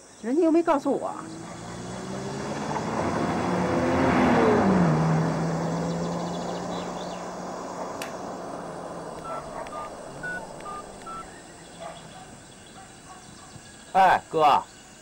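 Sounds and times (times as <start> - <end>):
car engine hum: 0.9 - 12.7
phone keypad beeps: 9.2 - 11.3.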